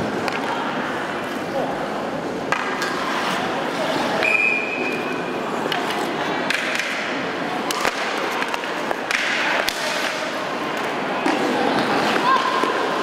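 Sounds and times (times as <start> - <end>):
hockey sticks clacking: 0.0 - 1.5, 2.3 - 13.0
skates scraping on ice: 2.6 - 7.0, 7.6 - 13.0.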